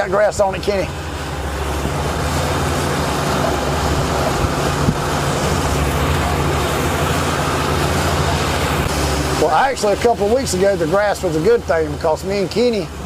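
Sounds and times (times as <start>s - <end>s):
outboard motor droning: 0.0s - 13.0s
water rushing past hull: 0.0s - 13.0s
wind hissing: 1.0s - 11.1s.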